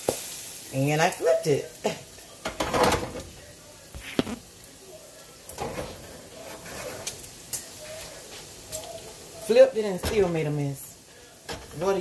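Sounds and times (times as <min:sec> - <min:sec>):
spatula scraping frying pan: 0:06.4 - 0:07.2.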